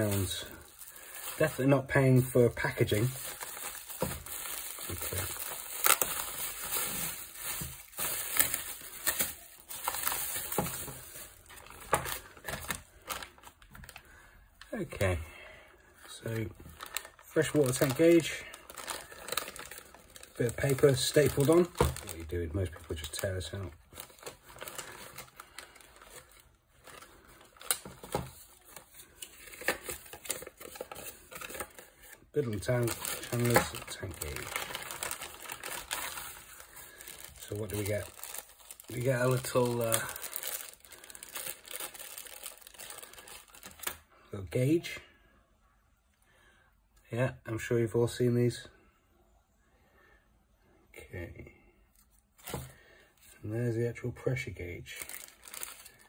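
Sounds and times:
bubble wrap crackles: 0.0 - 14.0, 16.0 - 44.0, 54.9 - 56.0
bubble wrap rustling and crinkling: 0.0 - 14.0, 16.0 - 44.0, 54.9 - 56.0.

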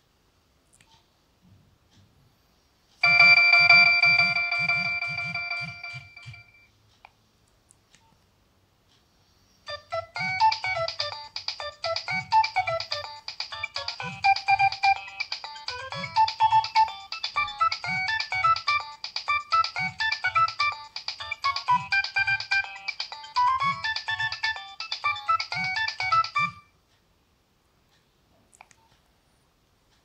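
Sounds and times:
polyphonic phone ringtone: 3.0 - 6.7, 9.7 - 26.7
faint clicks: 27.9 - 29.0.

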